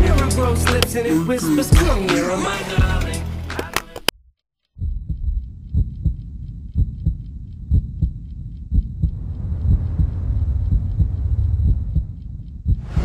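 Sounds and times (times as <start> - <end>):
heartbeat thumps: 4.8 - 13.0
low hum: 4.8 - 13.0.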